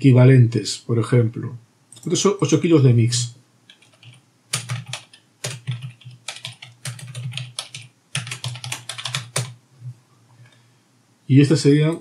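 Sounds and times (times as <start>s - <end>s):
computer keyboard typing: 3.7s - 9.6s.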